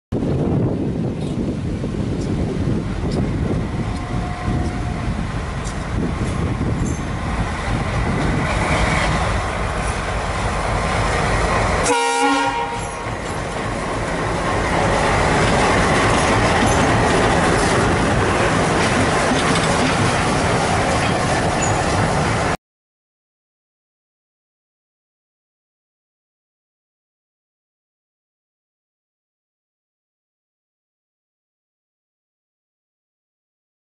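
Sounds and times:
diesel locomotive engine: 0:00.2 - 0:22.6
train wheels clattering over rail joints: 0:05.5 - 0:11.8, 0:12.8 - 0:22.3.

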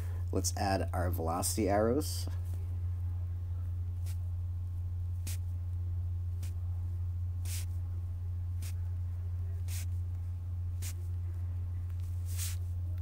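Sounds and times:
steady low hum: 0:00.0 - 0:13.0
stylus scratching on tablet screen: 0:12.2 - 0:12.7.

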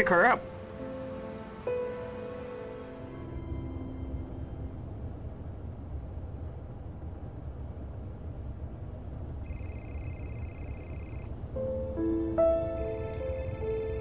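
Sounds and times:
smartphone ringtone: 0:09.5 - 0:11.3, 0:12.8 - 0:14.0.

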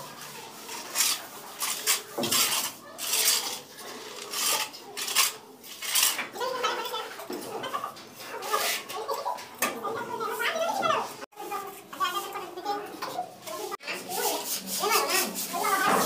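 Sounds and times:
hand float rasping on plaster: 0:00.2 - 0:06.2, 0:13.9 - 0:16.0.

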